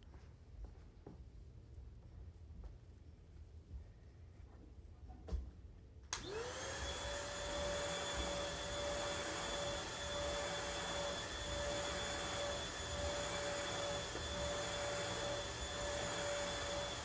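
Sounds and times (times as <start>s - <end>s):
vacuum cleaner switch clicks: 6.1s - 6.6s
vacuum cleaner motor whine: 6.2s - 17.0s.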